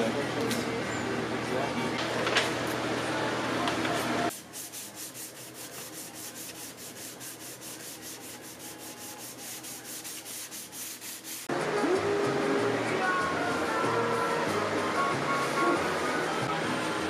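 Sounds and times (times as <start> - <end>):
sandpaper rubbing on filler: 4.3 - 11.5.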